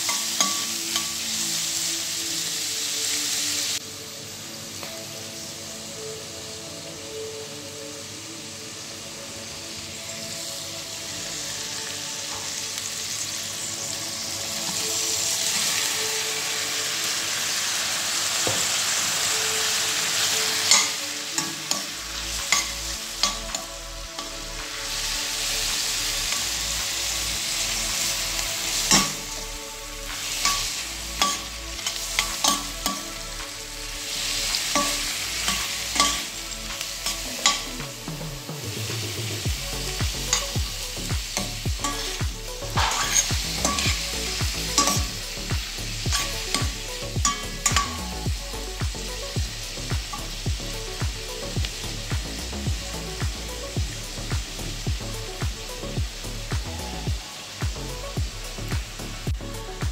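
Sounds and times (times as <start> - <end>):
food sizzling in a pan: 0.0 - 59.9
metal spoon scraping a pan: 20.2 - 26.6, 28.0 - 37.8, 41.3 - 45.4, 46.0 - 48.0.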